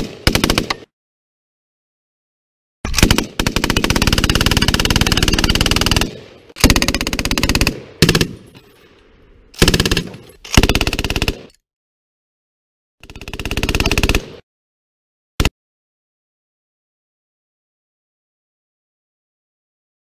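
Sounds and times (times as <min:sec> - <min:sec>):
machine gun firing bursts: 0:00.0 - 0:00.9, 0:02.9 - 0:08.5, 0:09.6 - 0:11.5, 0:13.0 - 0:14.4.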